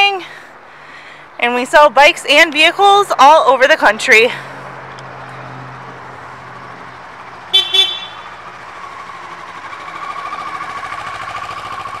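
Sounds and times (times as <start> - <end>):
golf cart horn toots: 7.5 - 8.3.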